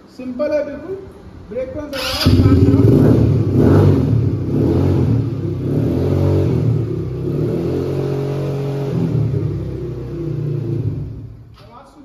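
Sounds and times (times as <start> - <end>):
quad bike engine revving: 1.9 - 11.4.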